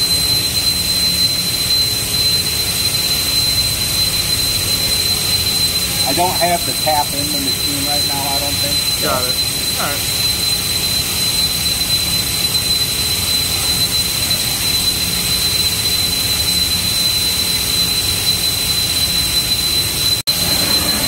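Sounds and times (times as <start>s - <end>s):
machine spindle whine: 0.0s - 21.0s
mechanical hiss and low hum: 2.6s - 10.5s.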